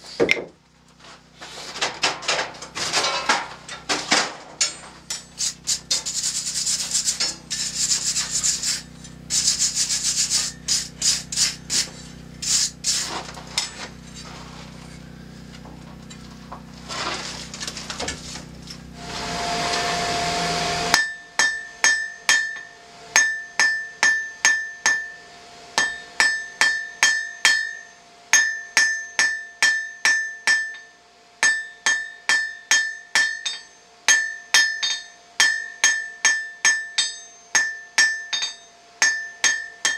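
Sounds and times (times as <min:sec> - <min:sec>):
steady low hum: 0:00.0 - 0:39.9
scraping and rubbing: 0:01.0 - 0:15.1, 0:15.9 - 0:19.9
hammer striking hot steel on anvil: 0:04.6 - 0:06.1, 0:20.9 - 0:39.9.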